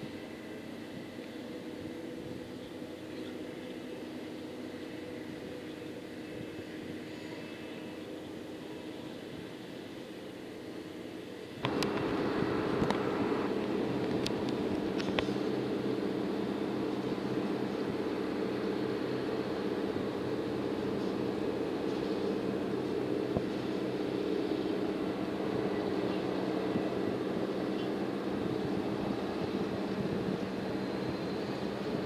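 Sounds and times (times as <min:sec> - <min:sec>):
diesel engine droning: 0:00.0 - 0:32.0.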